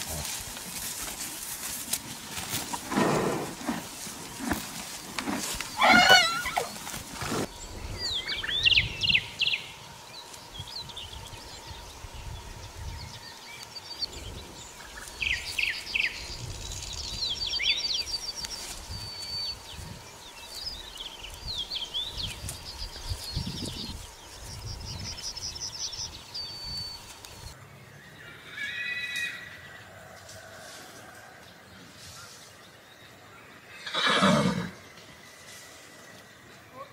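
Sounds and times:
small birds chirping and trilling: 3.2 - 30.5
horse whinnying: 5.2 - 7.5, 28.3 - 29.6, 33.7 - 34.8.

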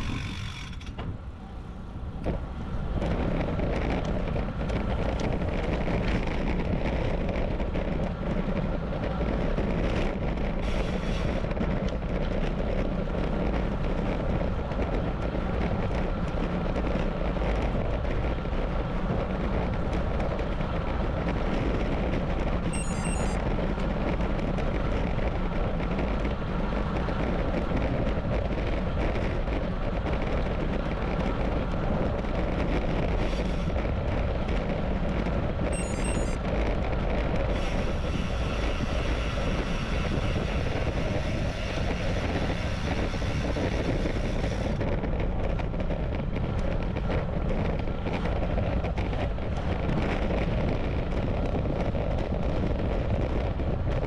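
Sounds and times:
bike tyres rolling on pavement: 0.0 - 54.0
wind rushing on microphone: 0.0 - 54.0
short high chirp: 35.8 - 36.4.

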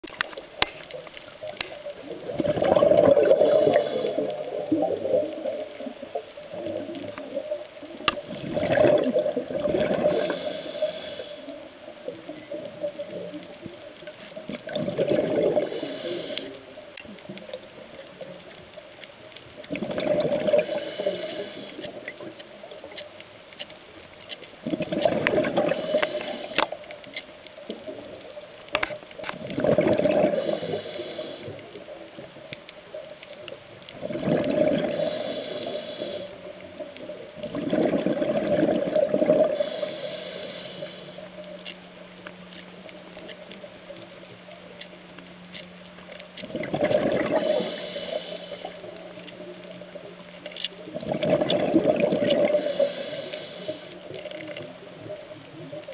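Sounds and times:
bubbles hissing: 0.1 - 18.3, 19.5 - 23.0, 24.6 - 27.0, 28.7 - 32.3, 33.9 - 41.8, 46.4 - 55.9
diver breathing through regulator: 2.4 - 4.4, 9.7 - 11.6, 15.0 - 16.6, 19.8 - 22.0, 25.3 - 26.8, 29.6 - 31.6, 34.4 - 36.5, 38.6 - 41.4, 46.9 - 49.0, 52.0 - 54.1.

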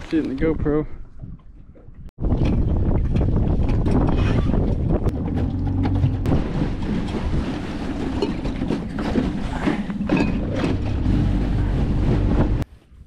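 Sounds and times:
water noise: 0.0 - 12.6
wind noise: 0.0 - 13.0
outboard motor running: 4.6 - 12.6.

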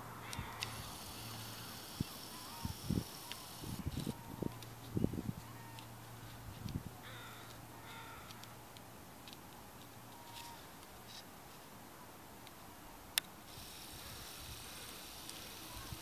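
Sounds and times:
bird calling: 0.0 - 6.4, 7.0 - 8.6, 10.0 - 11.2.

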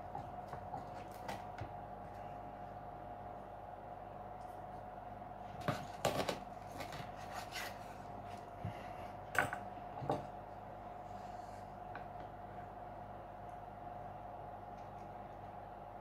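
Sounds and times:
faint steady hum: 0.0 - 16.0
knife cutting crunchy pizza crust: 5.6 - 7.9.

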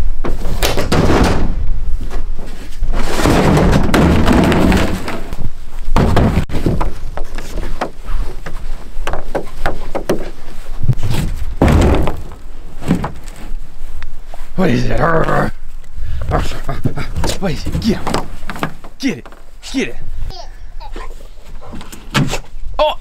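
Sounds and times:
plastic kayak scraping against metal: 2.9 - 5.4
sharp knocks and clicks: 6.0 - 10.3.

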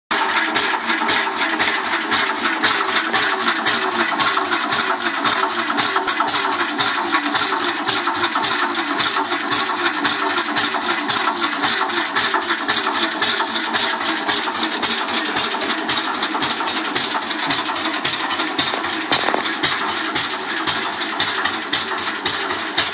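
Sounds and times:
petrol engine idling: 0.1 - 22.9.

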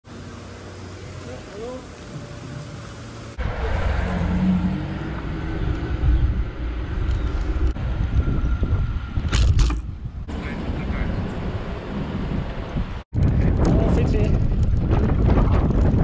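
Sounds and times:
bike tyre rumble: 0.1 - 10.2, 12.4 - 16.0
wind buffeting microphone: 4.8 - 16.0.

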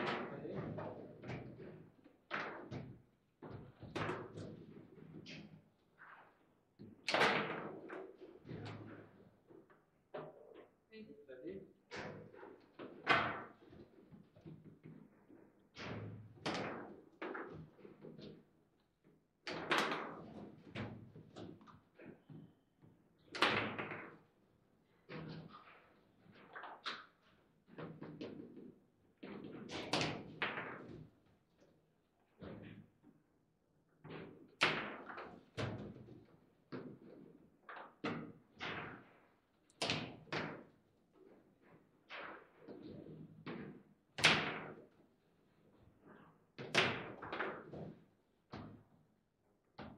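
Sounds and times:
foosball knocks and clacks: 0.0 - 6.2, 19.5 - 22.4, 23.3 - 24.3, 26.4 - 31.1, 42.1 - 44.8, 46.6 - 48.9.

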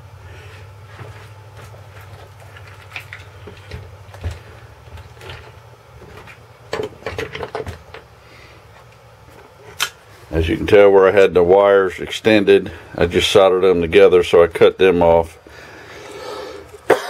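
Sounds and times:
steady low hum: 0.0 - 17.0
clicks and knocks of handling: 1.0 - 8.1.

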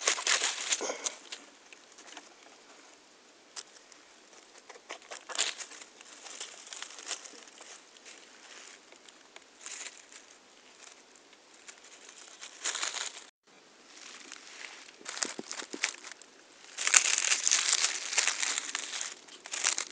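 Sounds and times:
dead leaves rustling: 0.0 - 2.9, 3.5 - 19.9
mushroom tearing apart: 14.9 - 19.9.

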